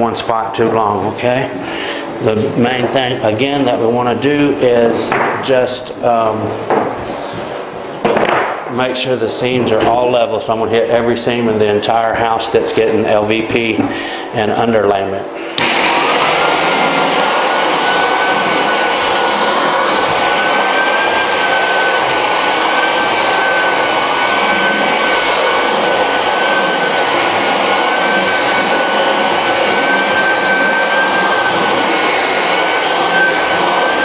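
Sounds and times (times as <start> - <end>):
floor sander running with whine: 15.4 - 34.0.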